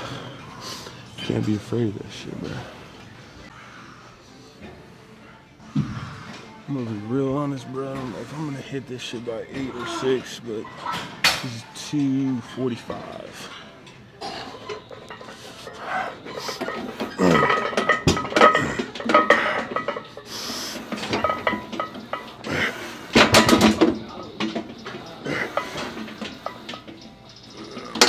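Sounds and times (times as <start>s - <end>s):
metal bar and plates clinking: 14.5s - 20.2s, 20.9s - 22.5s, 23.1s - 28.0s.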